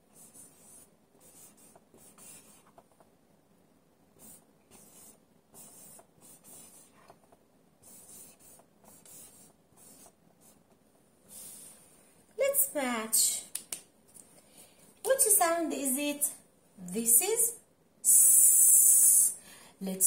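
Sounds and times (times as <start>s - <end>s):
marker scratching on whiteboard: 0.0s - 3.1s, 4.2s - 11.6s.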